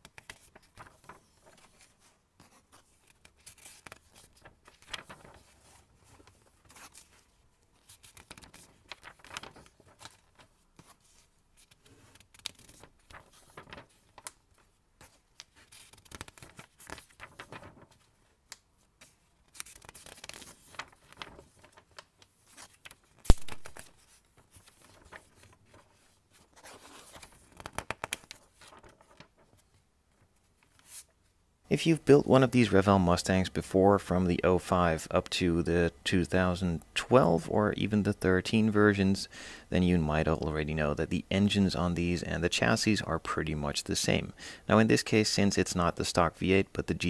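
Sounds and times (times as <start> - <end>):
paper pages rustling: 0.0 - 31.2.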